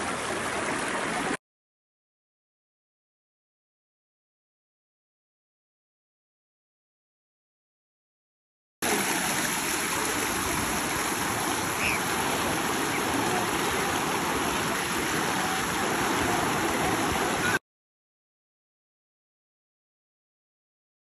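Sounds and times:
river water rushing over rocks: 0:00.0 - 0:01.4, 0:08.8 - 0:17.6.

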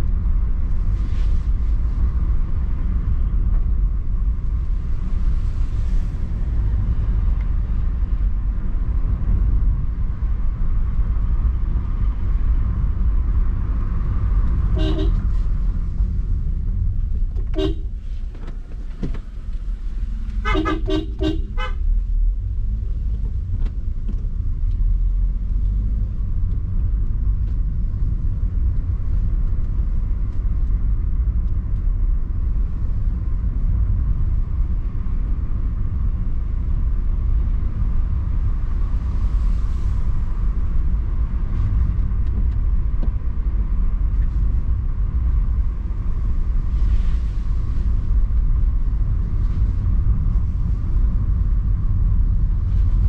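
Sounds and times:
car engine and tyre rumble: 0:00.0 - 0:53.0
car horn toot: 0:14.7 - 0:15.3, 0:17.5 - 0:17.9, 0:20.4 - 0:21.8.

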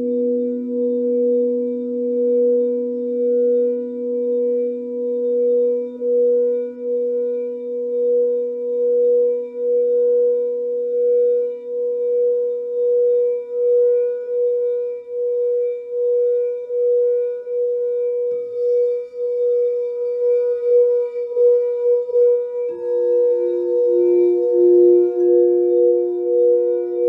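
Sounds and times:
lower singing bowl tone: 0:00.0 - 0:27.0
singing bowl pulsing tone: 0:00.0 - 0:27.0
faint higher ringing: 0:18.2 - 0:27.0.

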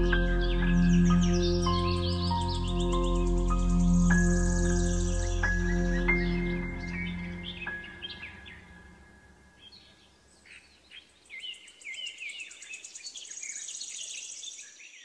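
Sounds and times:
rapid high ticking trill: 0:00.0 - 0:09.1
piano note: 0:00.0 - 0:09.5
small birds chirping: 0:00.0 - 0:15.0.

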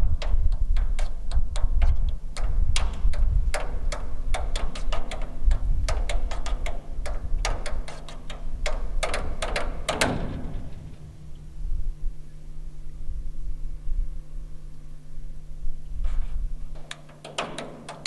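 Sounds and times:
low rumble: 0:10.2 - 0:16.8.

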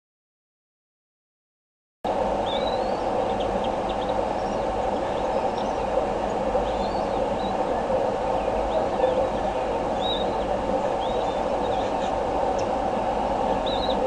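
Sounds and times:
steady microphone hiss: 0:02.1 - 0:14.0
faint bird chirps: 0:08.4 - 0:12.7.

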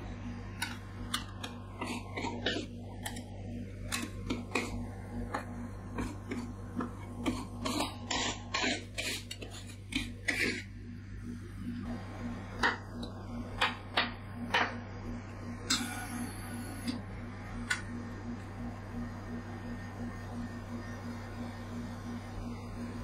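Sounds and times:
steady low hum: 0:00.0 - 0:23.0
metal spatulas scraping ice cream: 0:07.2 - 0:10.7.

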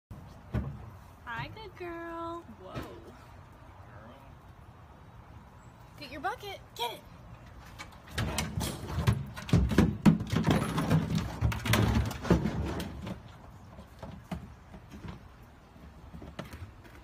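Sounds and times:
plastic bucket knocking and scraping: 0:08.0 - 0:17.0.

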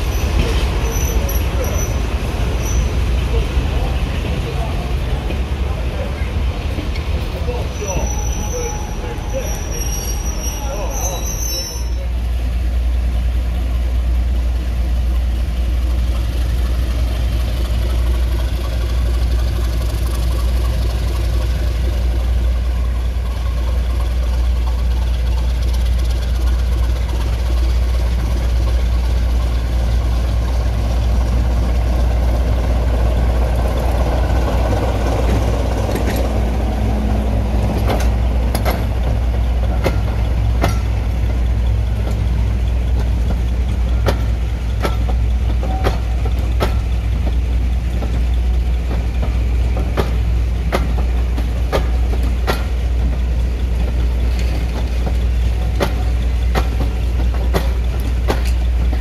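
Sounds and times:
diesel train engine droning: 0:00.0 - 0:59.0.

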